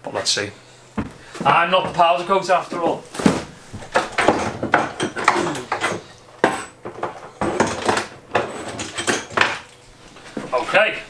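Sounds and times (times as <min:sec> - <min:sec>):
hard objects clattering on shelf: 0:03.2 - 0:10.5.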